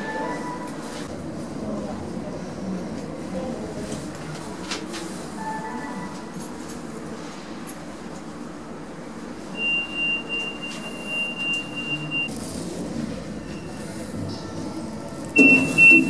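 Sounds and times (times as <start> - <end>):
steady high lift beep: 9.5 - 12.3, 15.4 - 16.0.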